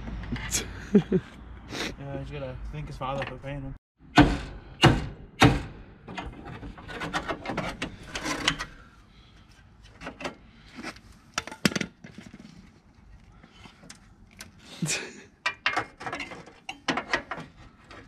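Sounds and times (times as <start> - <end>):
tools clattering and rattling: 6.1 - 8.8, 13.6 - 18.0.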